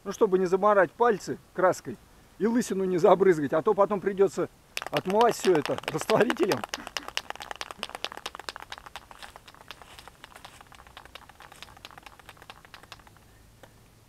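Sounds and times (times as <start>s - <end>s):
spray can ball rattling: 4.8s - 13.3s.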